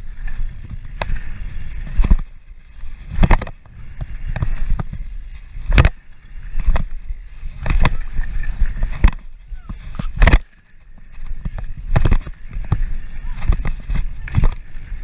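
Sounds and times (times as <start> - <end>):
bike clattering on bumps: 0.0 - 15.0
bike tyres on dirt: 0.0 - 15.0.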